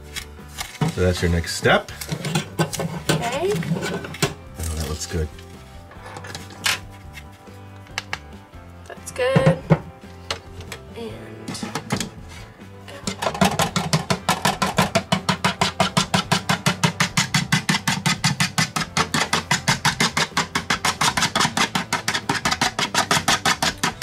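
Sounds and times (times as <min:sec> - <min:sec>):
whisk clicking against plastic bowl: 0:13.4 - 0:24.0.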